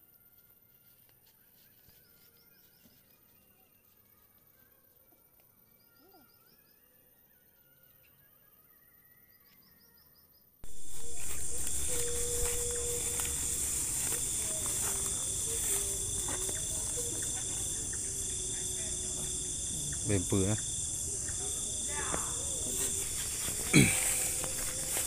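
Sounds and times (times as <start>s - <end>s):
bird chirping: 8.0s - 25.0s
night insect chorus: 8.8s - 25.0s.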